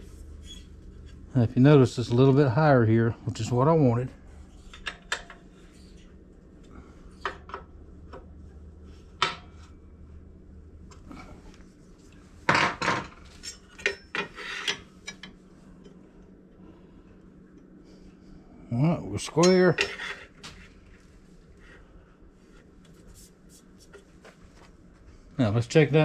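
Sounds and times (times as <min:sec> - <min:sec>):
metal tools clinking and clanking: 0:12.6 - 0:15.4.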